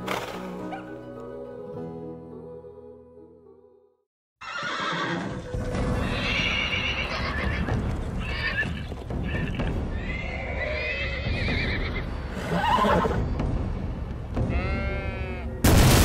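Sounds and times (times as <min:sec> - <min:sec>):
horses whinnying: 0:04.4 - 0:13.2
horses galloping: 0:04.6 - 0:13.2.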